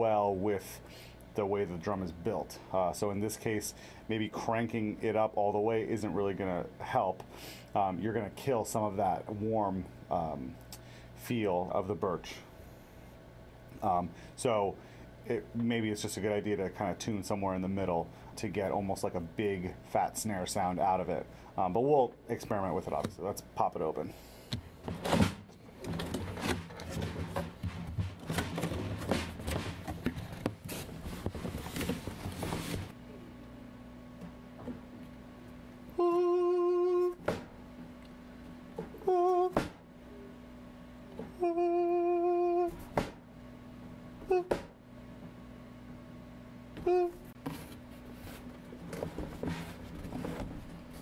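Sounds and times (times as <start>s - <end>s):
cardboard packaging rustling: 25.8s - 32.9s.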